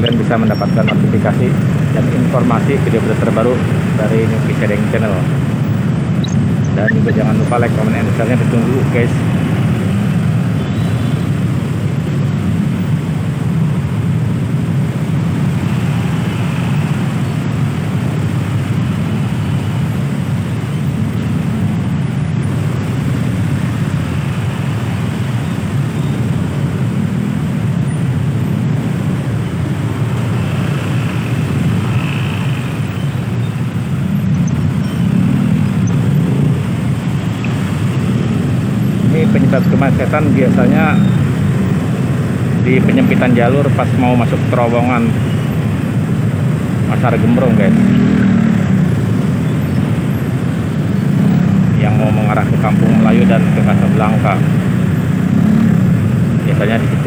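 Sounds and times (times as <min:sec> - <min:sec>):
motorcycle engines idling: 0:00.0 - 0:57.0.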